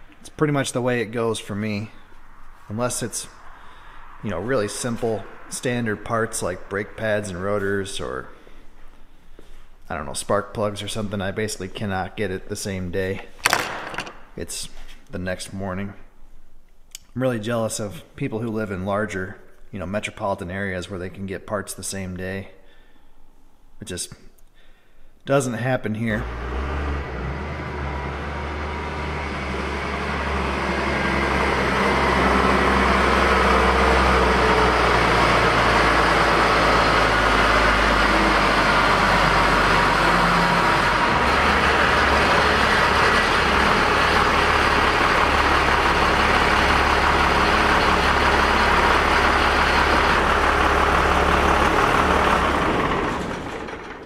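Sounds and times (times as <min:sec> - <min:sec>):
pickup truck engine running: 0:26.2 - 0:54.0.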